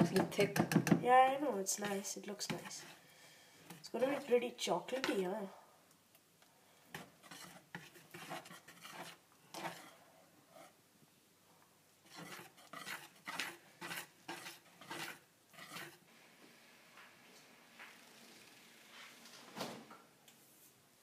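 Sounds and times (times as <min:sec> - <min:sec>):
whisk beating batter in bowl: 0:06.9 - 0:10.0, 0:12.1 - 0:16.0.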